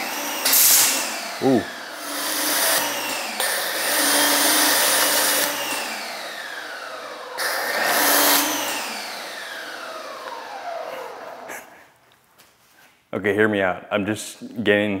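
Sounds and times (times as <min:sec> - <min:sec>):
pressure washer spraying: 0:00.0 - 0:01.2
motor hum and whine: 0:00.0 - 0:11.5.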